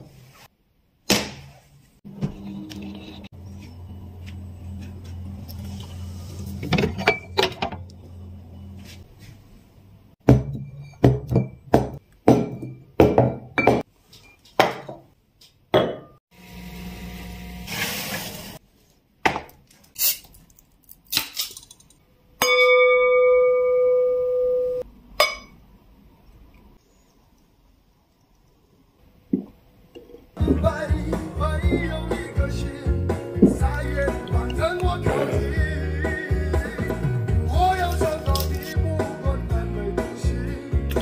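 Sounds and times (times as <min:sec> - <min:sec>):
low hum: 0:02.3 - 0:08.9
glass bottles clinking: 0:06.7 - 0:07.8.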